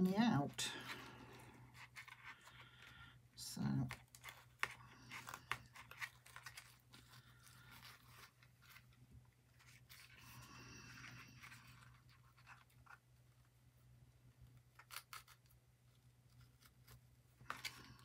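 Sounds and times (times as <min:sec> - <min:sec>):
tissue rustling and crinkling: 0:03.9 - 0:13.2.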